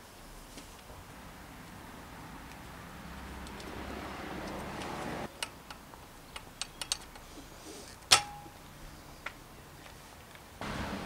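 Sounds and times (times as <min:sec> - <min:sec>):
background hiss: 0:00.0 - 0:11.0
metallic clicks of tools: 0:04.4 - 0:07.3
sharp ringing metal clink: 0:08.1 - 0:08.6.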